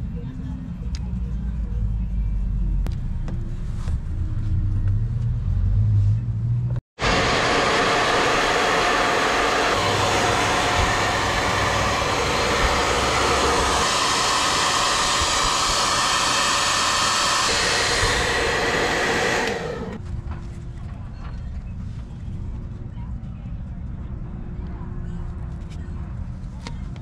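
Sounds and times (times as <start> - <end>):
heat gun blowing air: 7.0 - 20.0.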